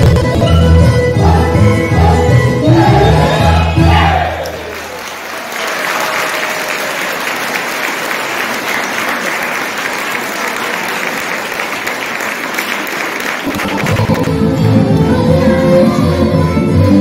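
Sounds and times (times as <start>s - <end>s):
music: 0.0s - 4.7s, 13.5s - 17.0s
audience clapping: 4.3s - 15.0s.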